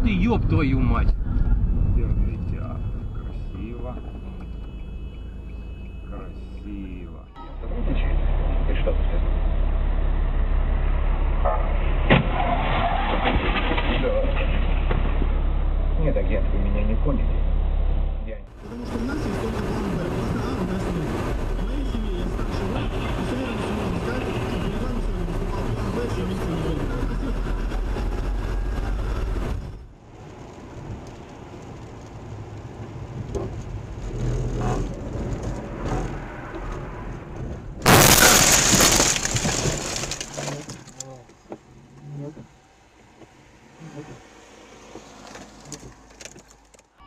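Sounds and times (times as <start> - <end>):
car engine and road noise: 0.0 - 47.0
low hum: 0.9 - 12.5, 13.6 - 20.6
car crashing into kerb: 37.8 - 41.0
crunching and scraping: 37.8 - 41.5.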